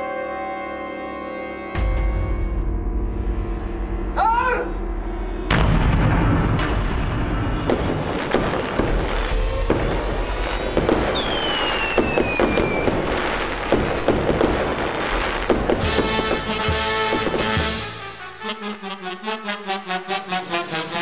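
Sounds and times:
fireworks bangs and crackles: 0:05.5 - 0:21.0
firework whistle falling in pitch: 0:10.2 - 0:13.1.

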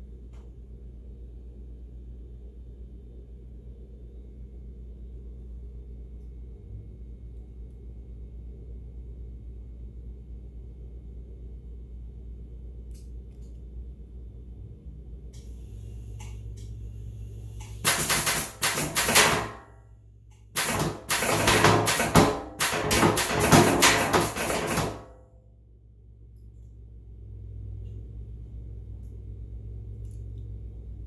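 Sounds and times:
low hum: 0:00.0 - 0:21.6, 0:24.0 - 0:31.0
metal lid rattling and banging: 0:20.6 - 0:25.1.

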